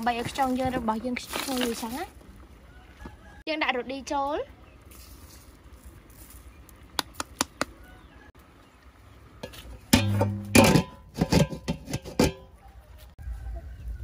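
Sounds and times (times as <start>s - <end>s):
metal pot lid clang: 9.4s - 12.5s
lid rattling knocks: 9.9s - 12.5s.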